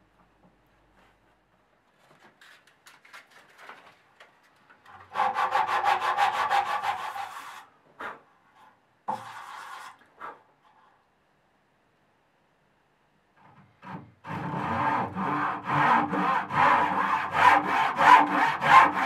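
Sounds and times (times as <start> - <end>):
sanding block rubbing wood: 5.2 - 7.6, 14.4 - 19.0.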